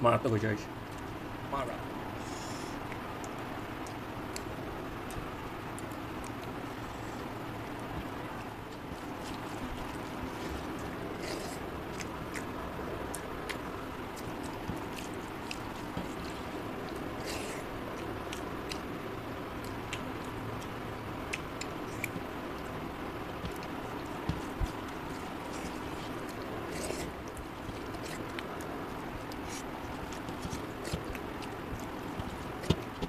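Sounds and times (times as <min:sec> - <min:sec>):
chewing: 0:02.8 - 0:33.0.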